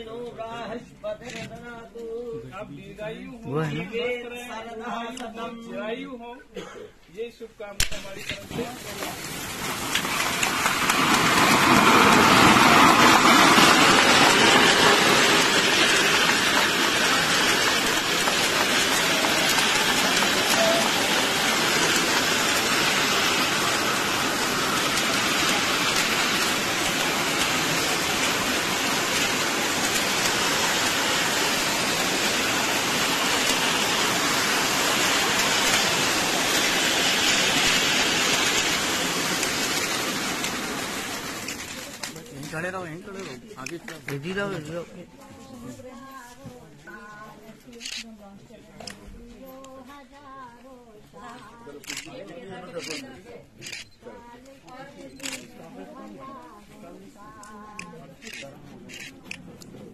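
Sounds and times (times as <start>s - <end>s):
spray fountain hissing: 7.8s - 42.8s.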